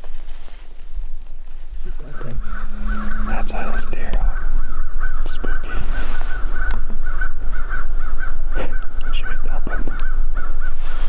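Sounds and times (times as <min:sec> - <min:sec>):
low rumble: 0:00.0 - 0:08.6
flock of birds chattering: 0:00.0 - 0:11.0.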